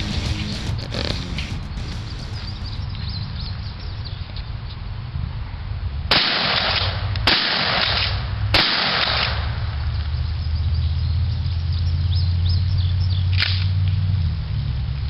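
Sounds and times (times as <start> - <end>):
steady low rumble: 0.0 - 6.2
shotgun shots: 6.1 - 9.6.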